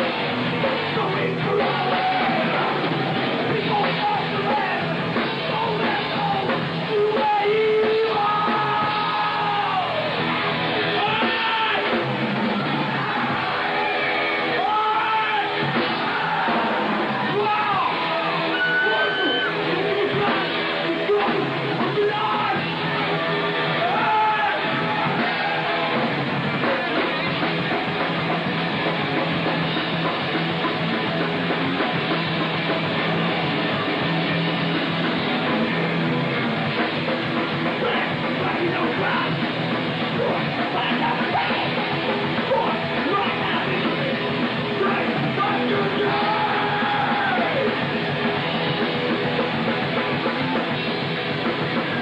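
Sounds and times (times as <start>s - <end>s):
distorted electric guitars: 0.0s - 52.0s
drum kit: 0.0s - 52.0s
shouted vocals: 0.8s - 28.0s, 40.1s - 47.9s.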